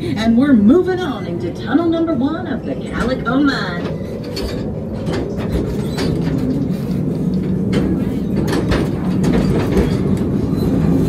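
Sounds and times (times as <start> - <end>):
train cars rumbling on track: 0.0 - 11.0
clacks and rattles: 2.8 - 11.0.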